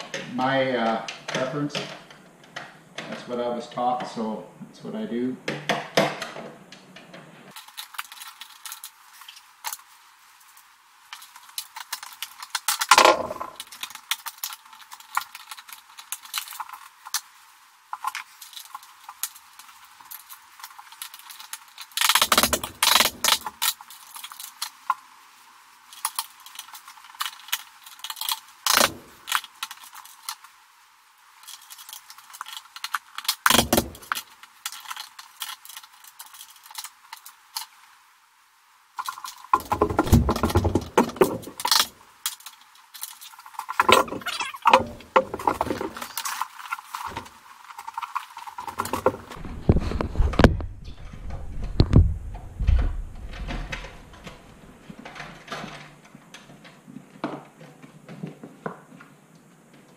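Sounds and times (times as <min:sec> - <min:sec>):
knocks and bumps: 0:12.9 - 0:13.6, 0:39.6 - 0:41.7, 0:43.8 - 0:46.2, 0:48.7 - 0:58.8.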